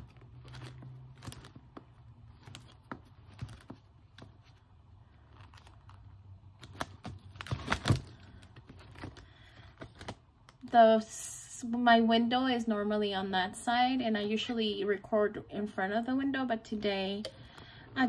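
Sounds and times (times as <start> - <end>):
planner pages clicking and rustling: 0.0 - 4.6, 5.2 - 10.7.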